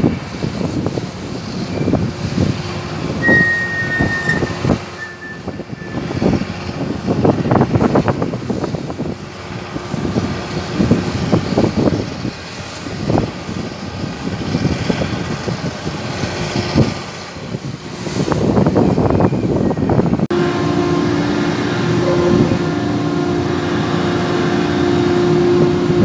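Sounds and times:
steady machine hum: 0:20.3 - 0:26.0.

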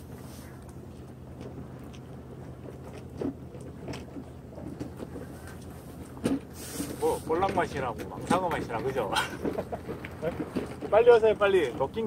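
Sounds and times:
steady low hum: 0:00.0 - 0:12.0
person chewing food: 0:00.6 - 0:02.2.

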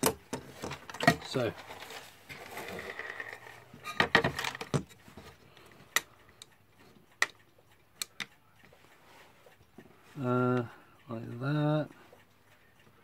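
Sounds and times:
sharp clicks: 0:04.1 - 0:08.7.

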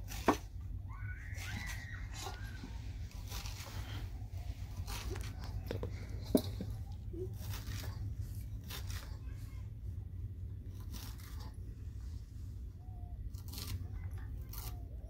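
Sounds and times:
knife cutting herb stems: 0:00.0 - 0:00.6, 0:01.4 - 0:09.4, 0:10.7 - 0:11.6, 0:13.2 - 0:15.0
steady low hum: 0:00.0 - 0:15.0.

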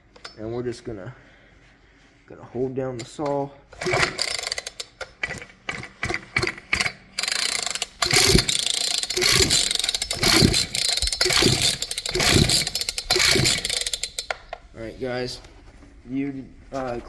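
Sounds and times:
chainsaw engine turning over: 0:03.8 - 0:14.4
starter rope whirring: 0:03.8 - 0:14.4.

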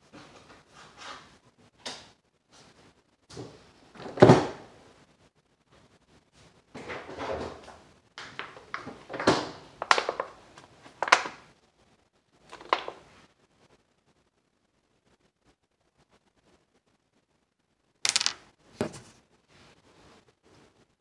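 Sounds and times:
clicks and knocks of small objects: 0:12.4 - 0:13.0, 0:18.0 - 0:19.0.

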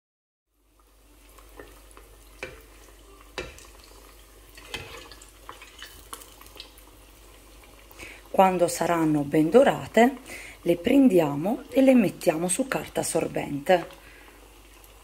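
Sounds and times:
food deep-frying in oil: 0:00.5 - 0:15.0.

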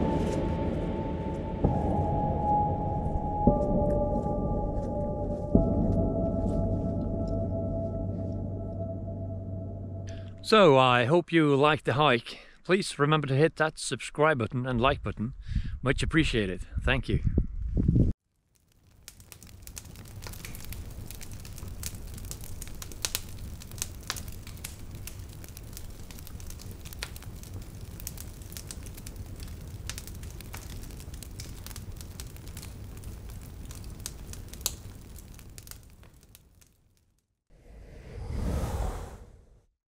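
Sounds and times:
low fire rumble: 0:00.0 - 0:03.2, 0:17.6 - 0:36.8, 0:37.6 - 0:39.6
wood fire crackling and popping: 0:18.3 - 0:37.2.

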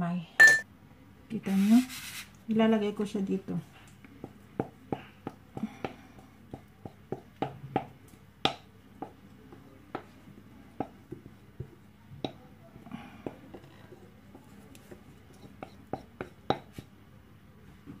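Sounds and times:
ceramic bowl knocking: 0:00.4 - 0:00.6, 0:15.4 - 0:16.8.

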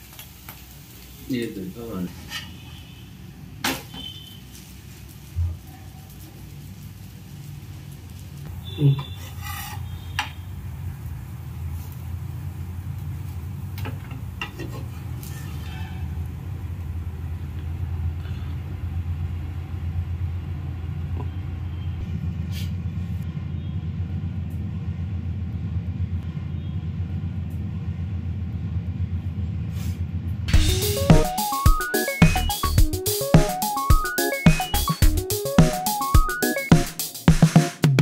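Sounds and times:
spatula scraping a pan: 0:02.0 - 0:03.0, 0:08.9 - 0:10.4, 0:14.4 - 0:16.2
cooktop rumbling: 0:04.8 - 0:23.2.

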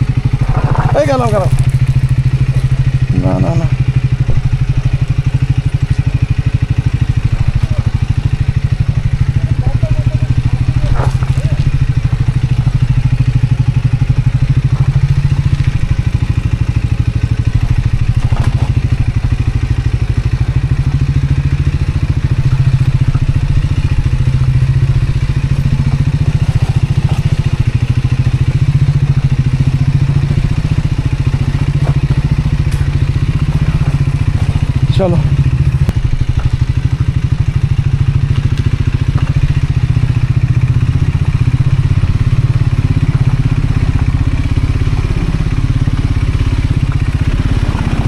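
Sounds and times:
motorcycle engine running: 0:00.0 - 0:48.0
knocks and rattles: 0:00.3 - 0:02.8, 0:17.4 - 0:19.2.

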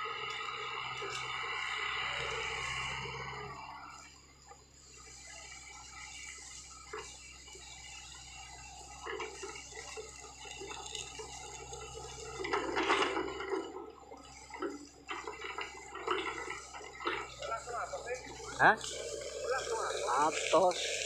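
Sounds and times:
diesel engine humming: 0:00.0 - 0:21.0
excavator knocking and scraping: 0:08.8 - 0:21.0.

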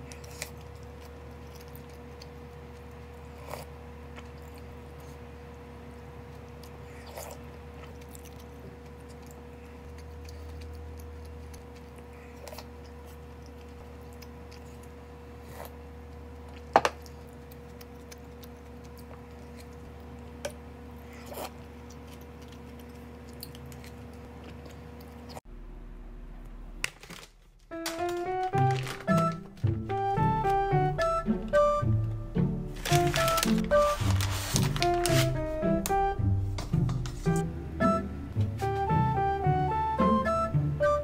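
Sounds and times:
faint chewing: 0:00.0 - 0:25.4
steady room hum: 0:00.0 - 0:41.0.

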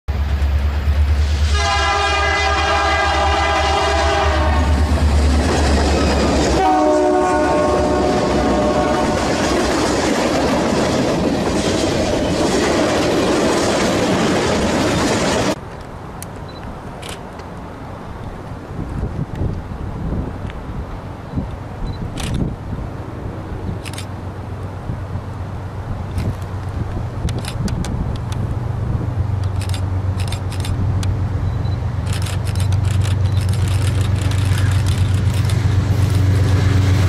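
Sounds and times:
freight train rumble and wheel clatter: 0:00.1 - 0:37.0
locomotive air horn: 0:01.2 - 0:04.8, 0:06.5 - 0:09.4.

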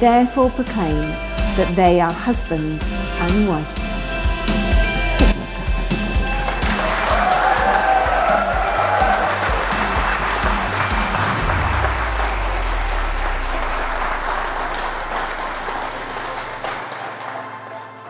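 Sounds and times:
congregation applauding: 0:06.2 - 0:18.0.

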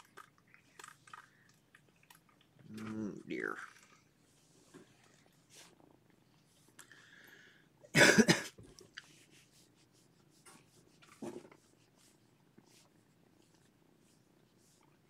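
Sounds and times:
person coughing: 0:07.9 - 0:08.6.

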